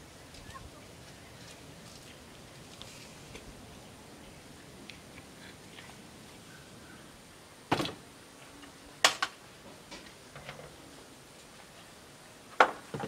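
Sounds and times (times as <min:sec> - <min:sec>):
knocks on wooden shed: 0:12.6 - 0:13.0.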